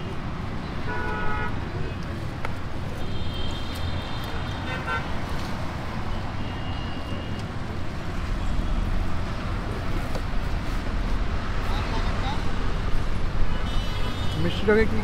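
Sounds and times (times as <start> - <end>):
road traffic: 0.0 - 15.0
vehicle horns: 0.8 - 1.6, 3.0 - 5.2, 13.5 - 15.0.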